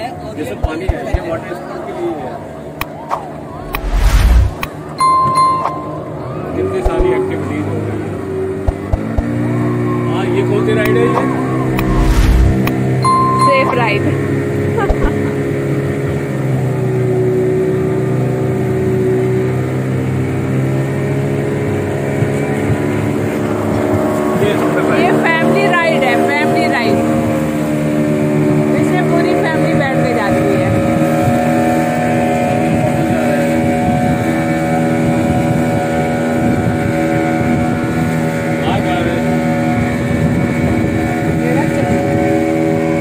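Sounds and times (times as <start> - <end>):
motorboat engine drone: 5.0 - 43.0
motorboat engine humming: 11.3 - 24.3.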